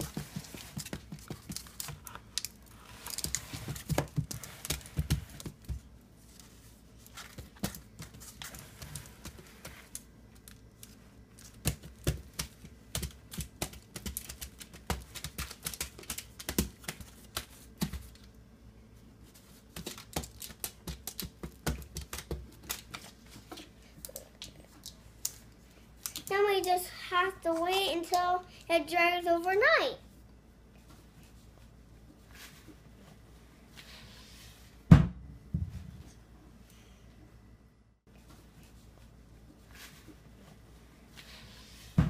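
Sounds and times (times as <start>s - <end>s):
hands patting dough on foil: 0.0s - 18.3s, 19.2s - 26.8s.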